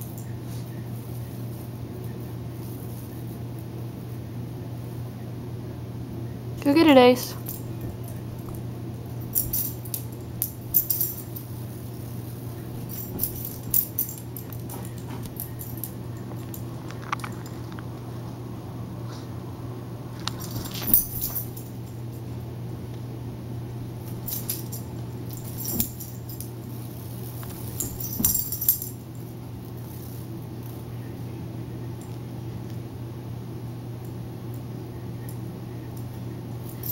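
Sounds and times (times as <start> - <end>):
steady low hum: 0.0 - 36.9
dog collar tags jingling: 7.4 - 17.6, 20.2 - 22.0, 24.0 - 29.1.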